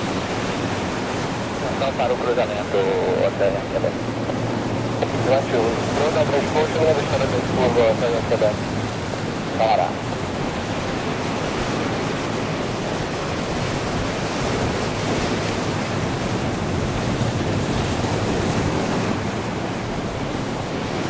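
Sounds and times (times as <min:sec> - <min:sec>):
jet engines rushing: 0:00.0 - 0:21.0.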